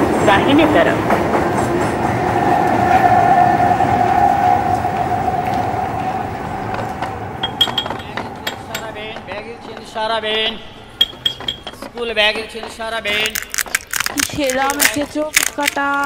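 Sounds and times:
metro train rumble with electric whine: 0.0s - 11.0s.

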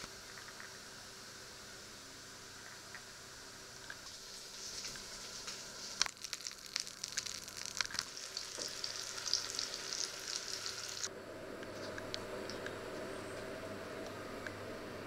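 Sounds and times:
food sizzling in frying pan: 4.0s - 11.1s.

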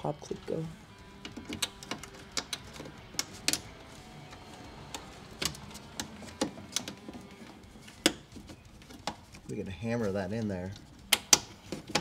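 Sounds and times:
plastic car trim clicking: 1.2s - 3.7s, 4.8s - 9.4s, 11.0s - 12.0s.

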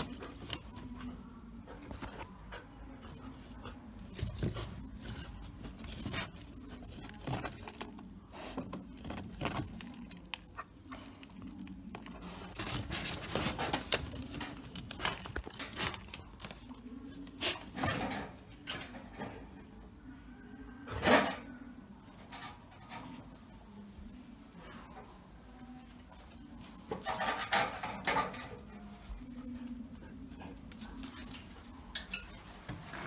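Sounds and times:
dogs scratching and rustling: 0.0s - 18.2s, 25.8s - 33.0s.

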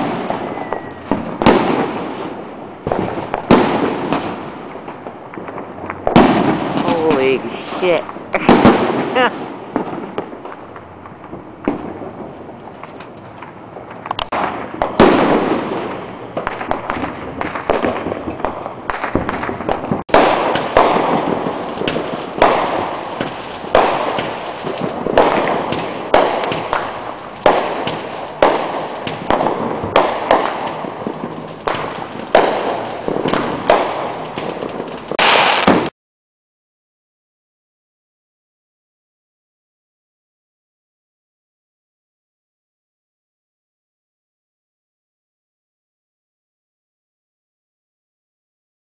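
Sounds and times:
aerial firework bangs: 0.0s - 10.4s, 14.2s - 35.9s
firework pops and crackles: 0.0s - 35.9s.

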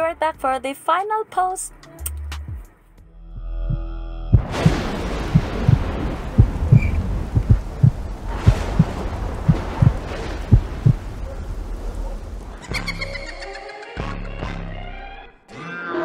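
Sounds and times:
heartbeat thumps: 2.3s - 2.7s, 3.6s - 11.4s
low rumble: 3.2s - 12.6s.

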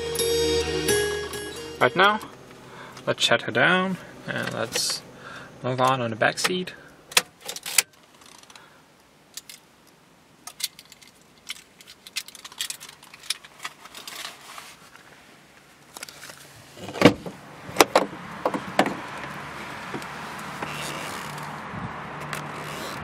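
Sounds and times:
car keys jangling: 10.5s - 14.4s
car door opening clunk: 16.8s - 19.1s.

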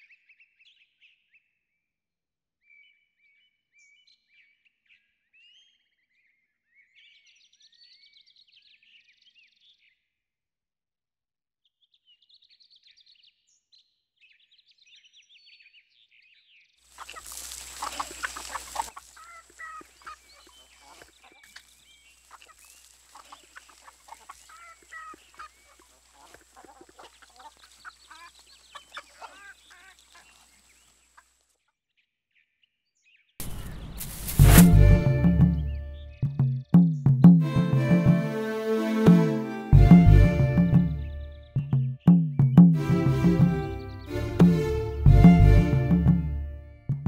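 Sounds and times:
small birds chirping: 16.9s - 31.7s, 33.1s - 37.4s, 40.8s - 42.7s
chickens clucking: 17.0s - 31.3s
loud deep sound: 33.4s - 36.4s.

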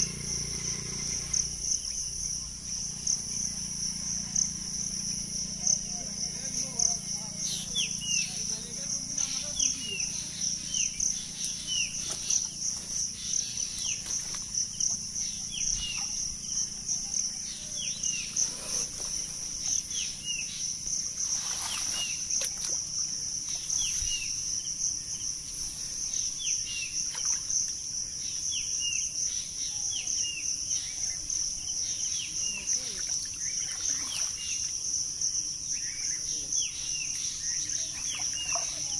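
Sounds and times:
high-pitched insect drone: 0.0s - 38.9s
bird chirping: 4.3s - 20.8s
water sloshing: 21.2s - 24.2s, 37.8s - 38.9s.

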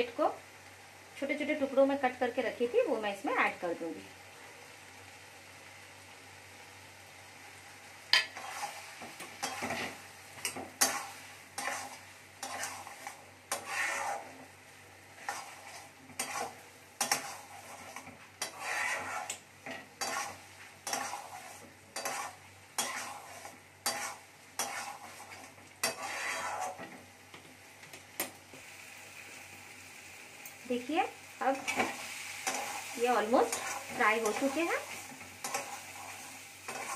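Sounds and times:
food sizzling: 0.0s - 36.9s
metal spatula scraping a pan: 8.2s - 14.5s, 15.1s - 27.0s, 31.5s - 36.9s.

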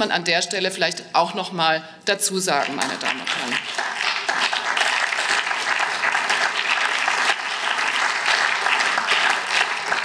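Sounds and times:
hands clapping: 2.6s - 10.0s.

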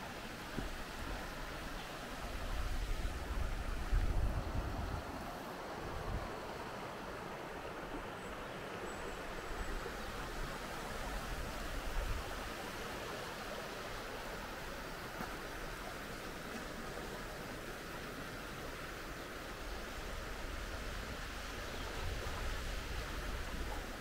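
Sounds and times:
river rushing: 0.0s - 24.0s
wind rumbling on microphone: 2.2s - 6.5s, 19.7s - 24.0s.

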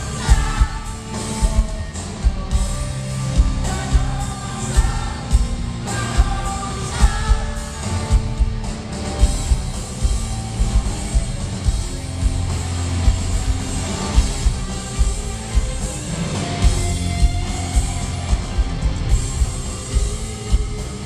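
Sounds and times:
heavy drum beat: 0.0s - 21.0s
rock song with singing: 0.0s - 21.0s.

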